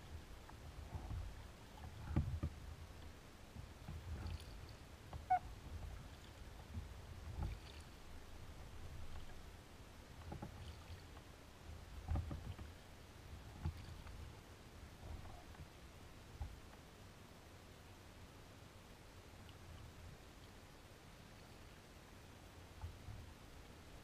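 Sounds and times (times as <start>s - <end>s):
paddle strokes in water: 0.0s - 16.8s, 22.6s - 24.0s.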